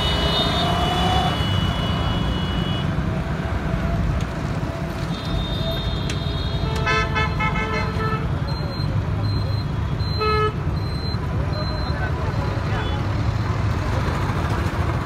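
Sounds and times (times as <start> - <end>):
vehicle horn: 0.0 - 2.9, 5.1 - 8.2
road rumble: 0.0 - 15.0.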